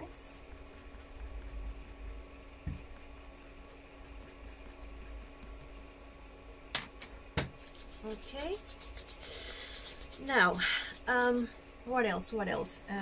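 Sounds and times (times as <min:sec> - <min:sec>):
pencil scratching on paper: 0:00.4 - 0:05.6, 0:07.6 - 0:11.5.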